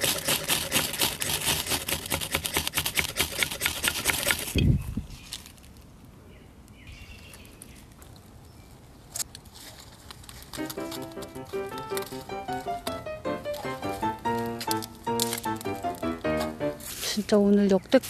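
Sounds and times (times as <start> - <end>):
knife scraping ferro rod: 0.0 - 4.6.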